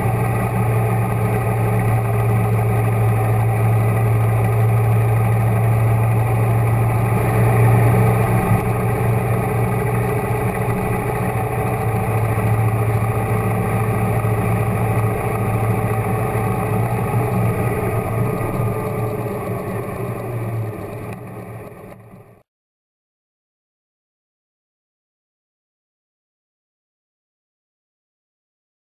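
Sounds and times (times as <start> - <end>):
motorcycle engine running: 0.0 - 22.4.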